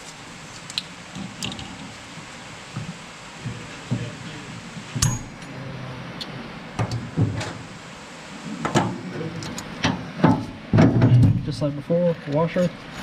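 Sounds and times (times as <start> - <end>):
metallic clinks and knocks: 5.0 - 5.5.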